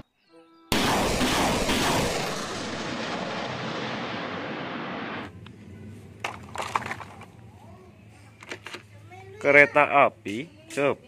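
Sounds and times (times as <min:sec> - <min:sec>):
rocket launch rushing noise: 0:00.7 - 0:05.4.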